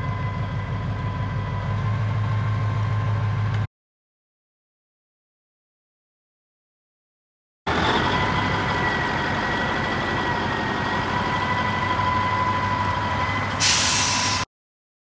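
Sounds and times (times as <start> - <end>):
air release hiss: 13.6 - 14.5.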